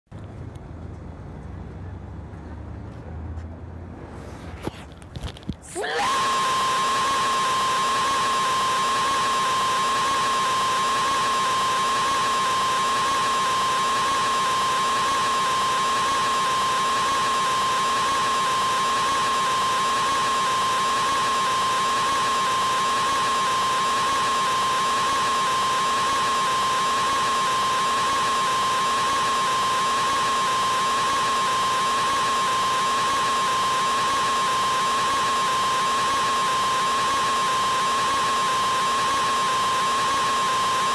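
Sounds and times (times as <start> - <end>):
stretched scream tone: 5.7 - 17.7.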